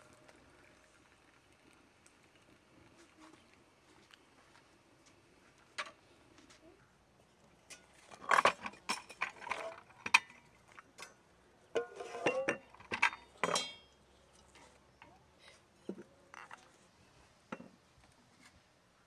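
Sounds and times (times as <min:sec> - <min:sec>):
glasses clinking: 0:11.8 - 0:13.9.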